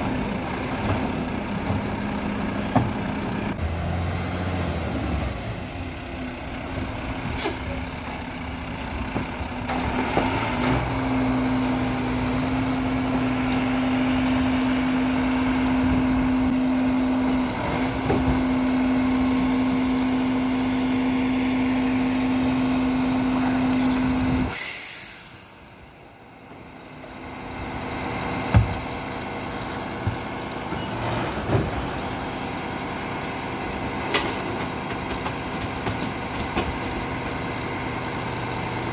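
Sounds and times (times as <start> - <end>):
diesel engine running: 0.0 - 38.9
air brakes hissing: 6.9 - 7.8, 24.4 - 26.2.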